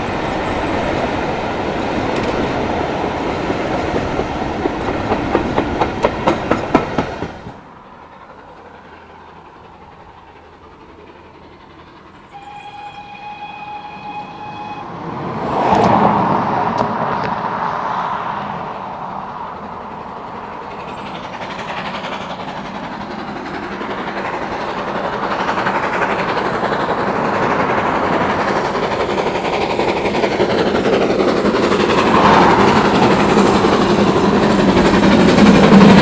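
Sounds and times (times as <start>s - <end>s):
train wheels clicking over rail joints: 0.0s - 14.2s, 19.4s - 36.0s
locomotive whistle: 12.2s - 15.0s.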